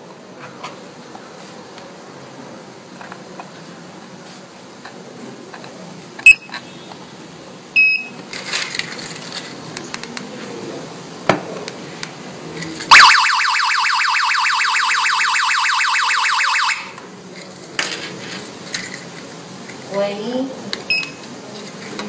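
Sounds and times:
clicks and handling noise: 8.1 - 10.6, 16.9 - 19.9, 20.7 - 22.0
loud warbling siren: 12.9 - 17.0.

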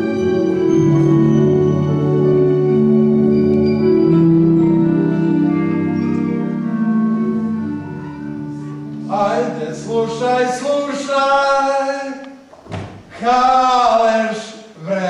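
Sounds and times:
sustained organ-like chords: 0.0 - 11.1
person singing wavering melody: 0.0 - 12.2.

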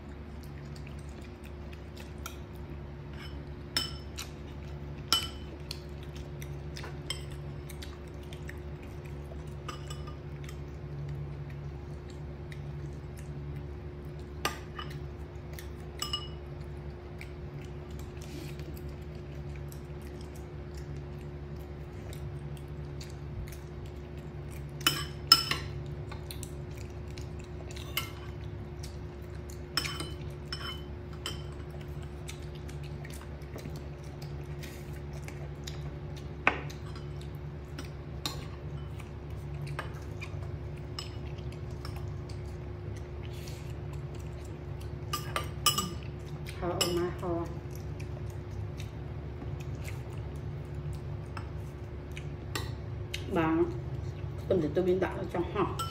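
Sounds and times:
steady low hum: 0.0 - 55.9
tableware clinking: 16.0 - 16.4, 29.8 - 31.5.

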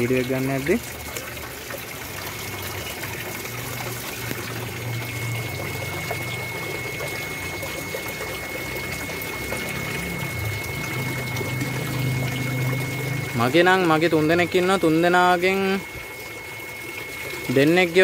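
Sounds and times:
water pouring into a pond: 0.0 - 18.0
high whine: 2.3 - 18.0
low hum: 4.1 - 15.0.

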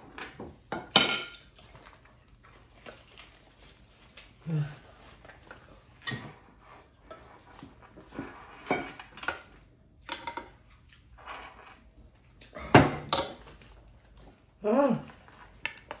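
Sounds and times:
spoons clinking on plates: 0.8 - 1.5.

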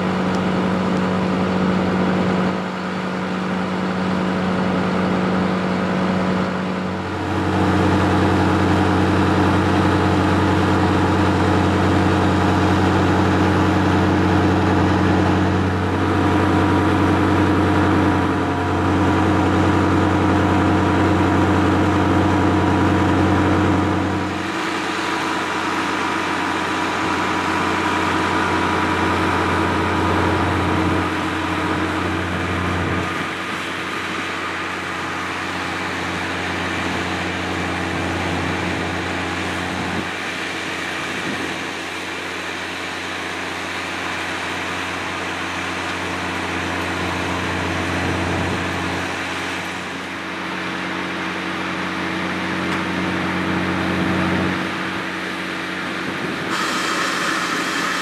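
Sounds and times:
pump rushing whir: 0.0 - 58.0
tractor diesel engine running: 0.0 - 58.0.

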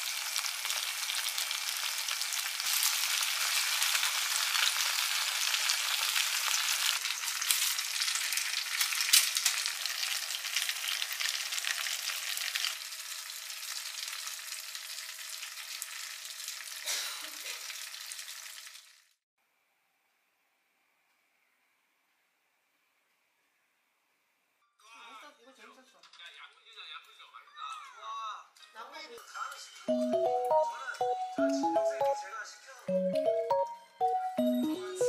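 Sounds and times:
fish sizzling in oil: 0.0 - 19.2.

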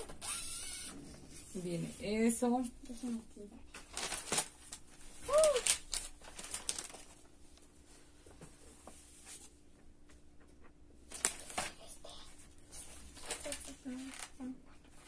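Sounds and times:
paper pages rustling: 3.7 - 7.8, 11.1 - 11.9, 12.7 - 15.0.

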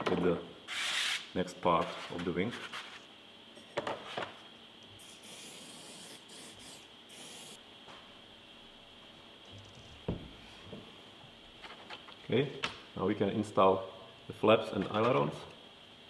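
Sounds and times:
aerosol spray can hissing: 5.0 - 7.6.

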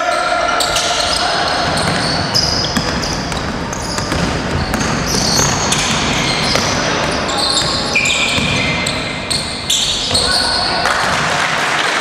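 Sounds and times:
sneakers squeaking: 0.0 - 11.3
indoor hall noise: 0.0 - 12.0
basketball bouncing on floor: 1.6 - 10.3.

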